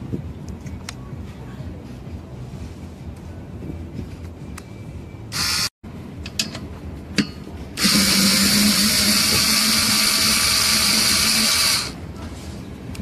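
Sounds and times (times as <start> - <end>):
cordless screwdriver running: 5.4 - 5.7, 7.8 - 12.0.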